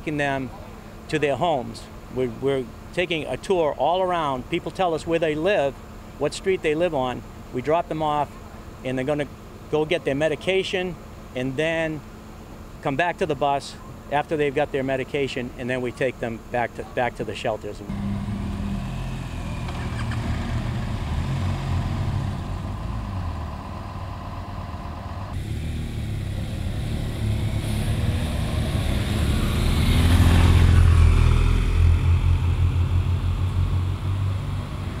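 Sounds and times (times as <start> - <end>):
vehicle engine running: 17.9 - 35.0.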